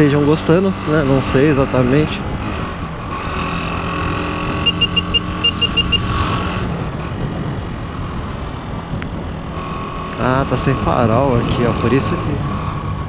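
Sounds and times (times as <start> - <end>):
motorcycle engine running: 0.0 - 9.3
short high beeps: 4.6 - 6.1.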